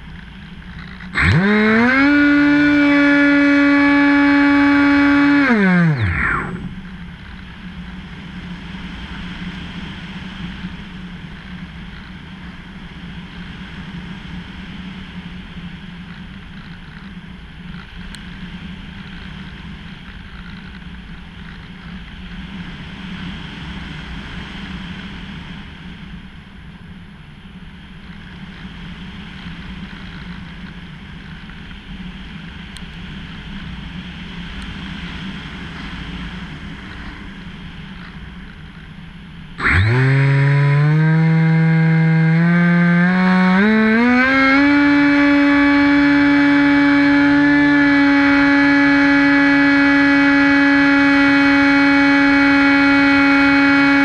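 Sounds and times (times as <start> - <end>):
electric motor and propeller whine: 0.0 - 54.0
glider rushing through air: 1.1 - 10.8.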